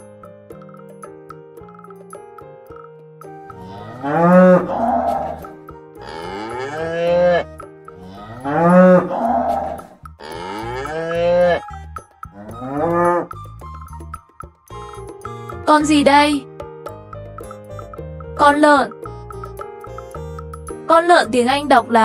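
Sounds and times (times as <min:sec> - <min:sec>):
cattle mooing: 0:03.6 - 0:11.7, 0:12.4 - 0:13.4.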